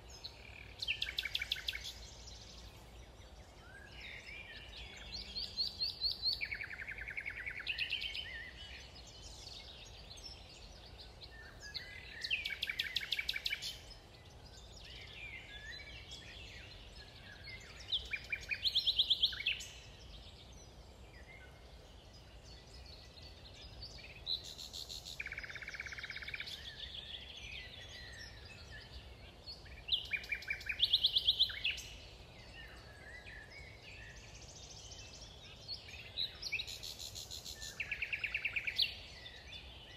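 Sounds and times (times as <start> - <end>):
songbirds trilling: 0.0 - 39.9.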